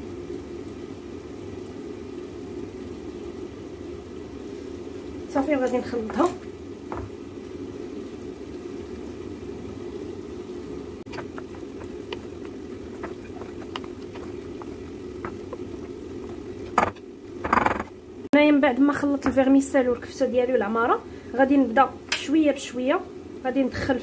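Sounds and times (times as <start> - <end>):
steady low hum: 0.0 - 24.0
wooden spoon scraping glass bowl: 11.1 - 17.9.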